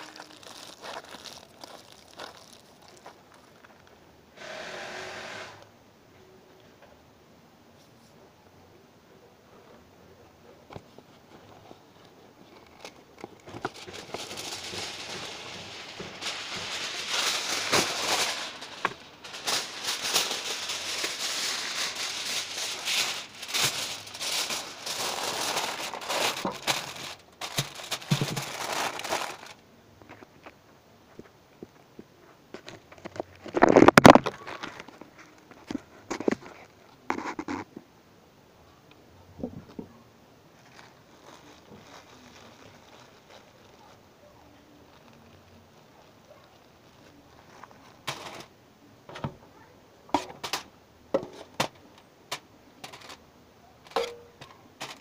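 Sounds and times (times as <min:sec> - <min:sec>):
aluminium foil crinkling: 0:00.0 - 0:04.0, 0:10.9 - 0:30.6, 0:32.6 - 0:37.7, 0:40.5 - 0:48.5, 0:50.2 - 0:53.2, 0:53.8 - 0:55.0.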